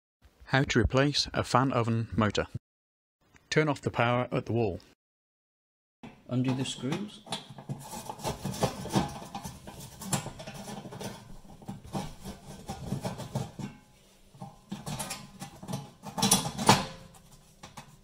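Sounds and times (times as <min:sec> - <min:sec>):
screwdriver scraping and clicking metal: 0:07.3 - 0:13.6
metal panel clattering: 0:14.4 - 0:18.0.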